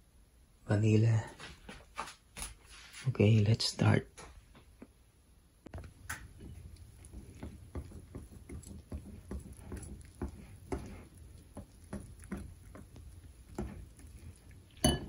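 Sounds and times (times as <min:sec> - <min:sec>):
whisk beating batter in bowl: 0:05.7 - 0:15.0.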